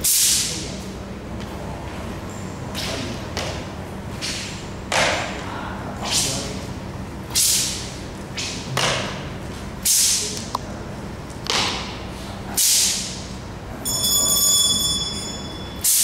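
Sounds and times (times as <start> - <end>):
high ringing tones: 13.7 - 16.0.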